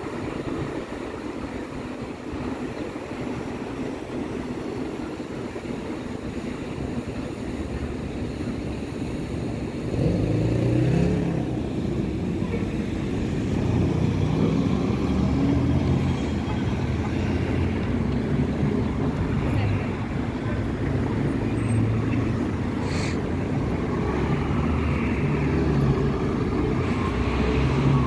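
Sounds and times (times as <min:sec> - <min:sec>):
cars passing: 0:00.0 - 0:28.0
nearby vehicle engine: 0:09.7 - 0:19.7.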